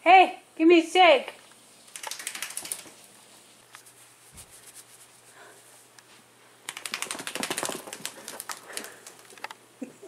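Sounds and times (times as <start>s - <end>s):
rapid rattling clicks: 1.9s - 3.0s, 6.7s - 9.6s
faint rustling: 2.4s - 6.5s.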